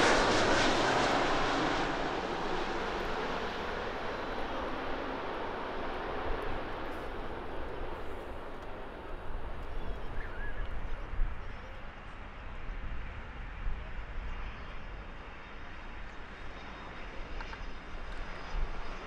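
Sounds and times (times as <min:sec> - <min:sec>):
jet engines rushing: 0:00.0 - 0:10.9.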